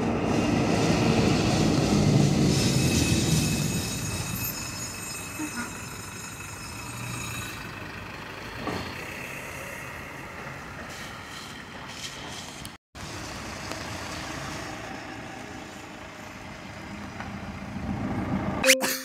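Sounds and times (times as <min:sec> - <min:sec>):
tyres hissing on wet road: 0:00.0 - 0:03.6, 0:09.0 - 0:16.6
tram passing: 0:00.0 - 0:18.7.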